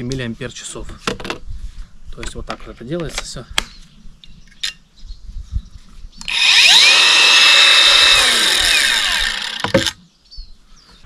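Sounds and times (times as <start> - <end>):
angle grinder whining: 6.2 - 10.0.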